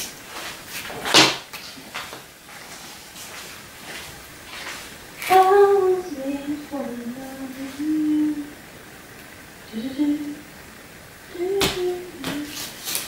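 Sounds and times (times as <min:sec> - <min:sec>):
person humming: 0:05.3 - 0:08.6, 0:09.6 - 0:10.5, 0:11.3 - 0:12.7.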